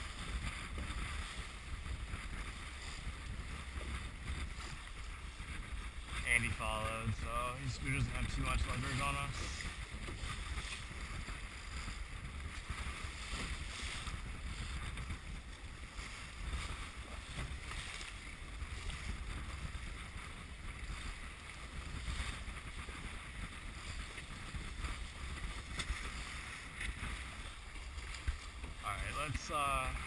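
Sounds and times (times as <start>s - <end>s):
water rushing along hull: 0.0s - 30.0s
wind buffeting microphone: 0.0s - 30.0s.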